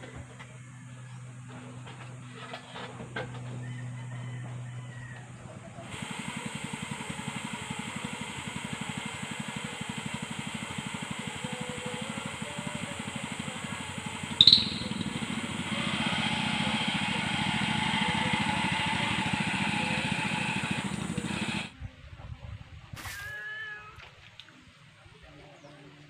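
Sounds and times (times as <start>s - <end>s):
small engine running: 0.0s - 21.8s
sharp click: 14.4s - 15.0s.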